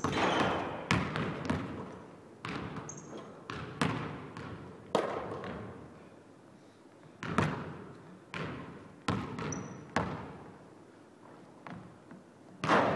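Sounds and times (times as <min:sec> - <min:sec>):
shoe squeak: 0:00.0 - 0:00.8, 0:02.9 - 0:03.3, 0:09.4 - 0:09.9
basketball bouncing on wooden floor: 0:00.0 - 0:05.6, 0:07.2 - 0:10.3.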